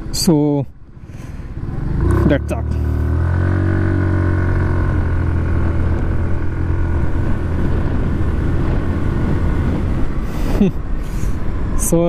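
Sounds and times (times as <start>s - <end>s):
scooter engine accelerating hard: 1.5s - 10.7s
wind noise on microphone: 3.0s - 12.0s.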